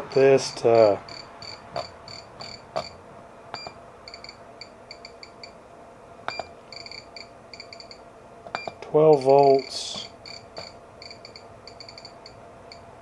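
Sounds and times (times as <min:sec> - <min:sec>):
short high electronic beeps: 0:06.3 - 0:08.0.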